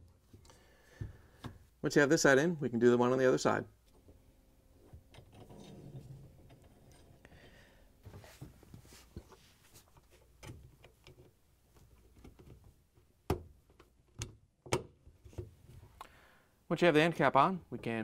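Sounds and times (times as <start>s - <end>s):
metal rack rail scraping: 5.3s - 7.3s.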